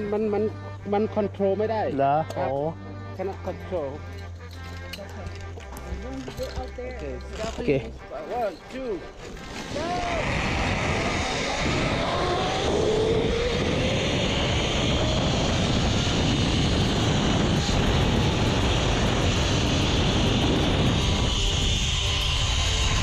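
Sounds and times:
zipline trolley whirring on cable: 0:04.1 - 0:07.9, 0:09.0 - 0:23.0
wind noise: 0:05.3 - 0:23.0.

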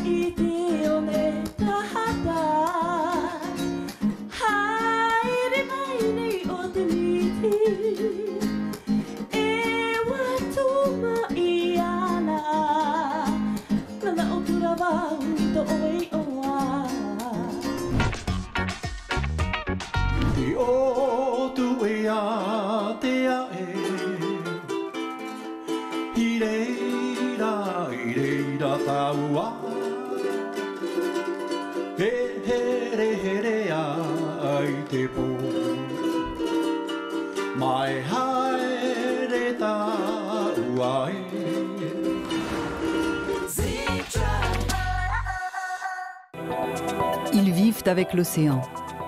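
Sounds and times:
ukulele strumming: 0:00.0 - 0:45.2
man singing with vibrato: 0:20.2 - 0:24.9, 0:25.9 - 0:36.2, 0:37.5 - 0:42.5, 0:43.4 - 0:46.2.

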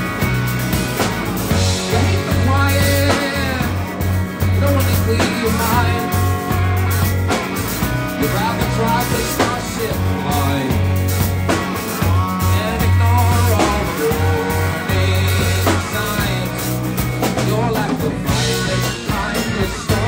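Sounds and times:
drums: 0:00.0 - 0:20.0
electric guitar: 0:00.0 - 0:20.0
heavy bass line: 0:00.0 - 0:20.0
singing: 0:17.3 - 0:20.0.

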